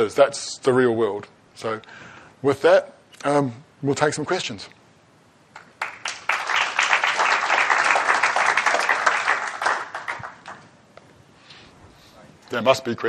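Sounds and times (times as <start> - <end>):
audience applauding: 5.6 - 10.7.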